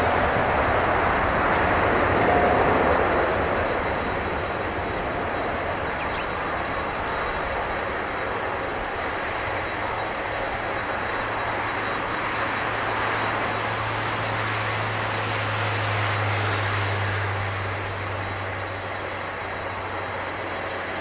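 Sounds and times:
jet engines roaring on takeoff: 0.0s - 21.0s.

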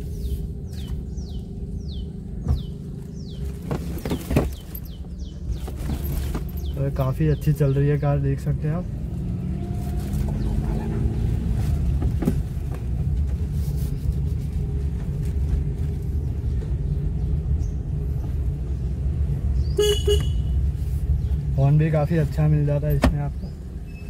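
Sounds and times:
car engine and tyre rumble: 0.0s - 24.0s
car horn toot: 19.7s - 20.6s.

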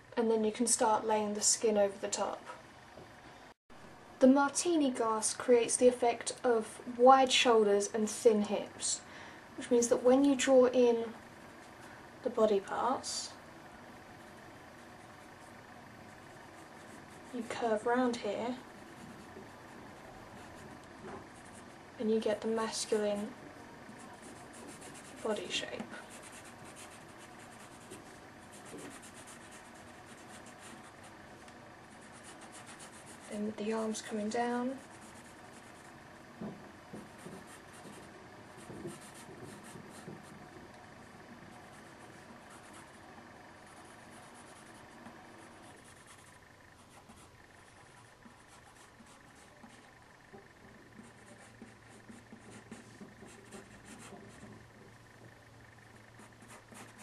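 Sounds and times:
pencil scratching on paper: 24.0s - 31.1s, 31.9s - 33.4s, 34.7s - 36.0s, 36.9s - 40.4s, 41.5s - 43.0s, 43.6s - 49.9s, 51.0s - 54.6s, 56.2s - 57.0s.

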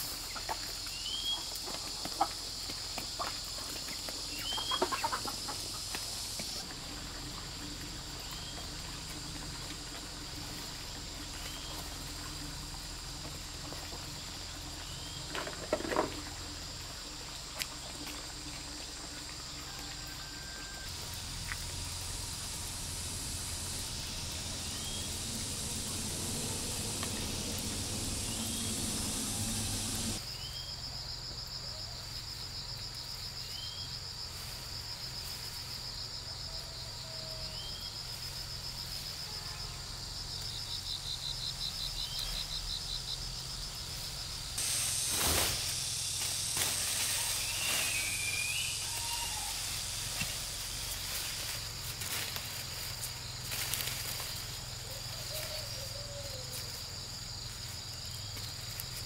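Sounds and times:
hiss: 0.0s - 15.2s, 20.8s - 30.3s, 40.0s - 59.0s
insects trilling: 0.0s - 59.0s.

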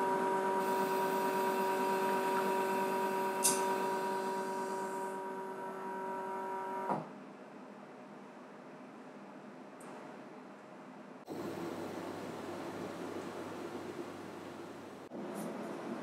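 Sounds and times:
espresso machine pump humming: 0.0s - 6.9s, 11.3s - 15.1s.

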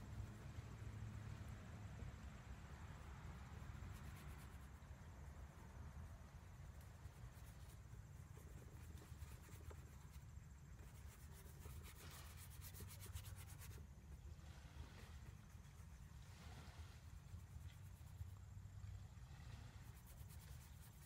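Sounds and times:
low steady rumble: 0.0s - 21.0s
brush scratching on canvas: 3.7s - 4.8s, 6.6s - 14.2s, 19.8s - 21.0s.

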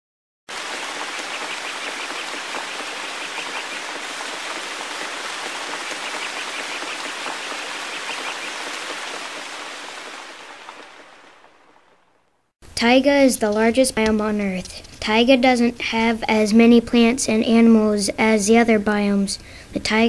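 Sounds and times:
running water: 0.5s - 12.0s.

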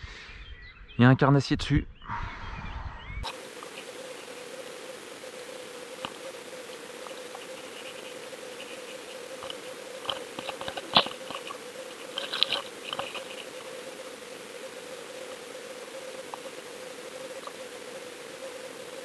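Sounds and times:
steady hum and hiss: 3.2s - 19.0s
sharp clicks and crackles: 6.0s - 13.6s.

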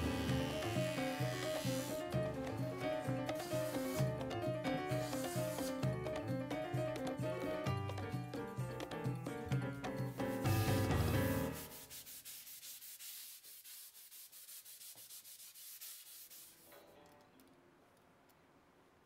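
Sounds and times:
background music: 0.0s - 11.9s.

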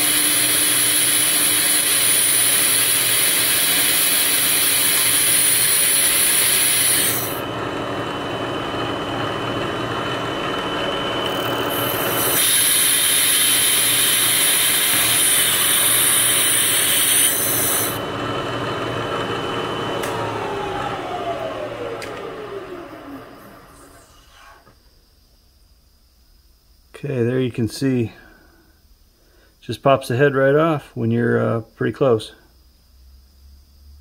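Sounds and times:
end mill cutting metal: 0.0s - 24.7s
milling spindle whine: 0.0s - 24.8s
compressed air hissing: 11.9s - 18.0s.

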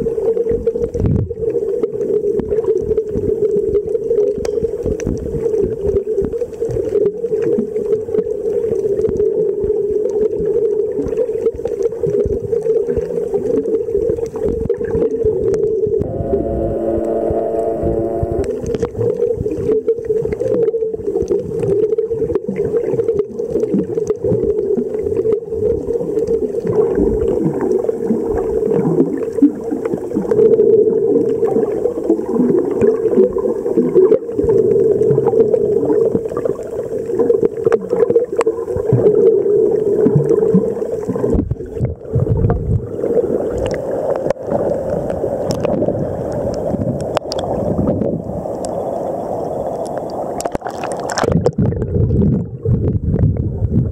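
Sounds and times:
underwater drone: 15.0s - 23.5s
underwater clicks: 43.5s - 47.6s, 49.8s - 52.4s.

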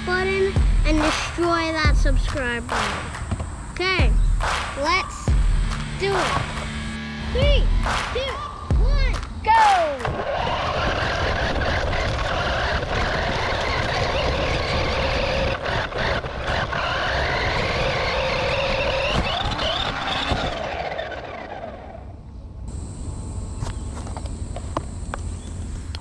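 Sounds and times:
electric motor whining: 10.0s - 26.0s.

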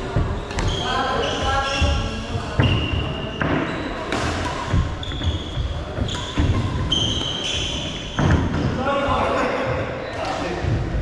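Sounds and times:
shoes squeaking on floor: 0.0s - 9.3s
rackets hitting shuttlecock: 2.6s - 8.7s.

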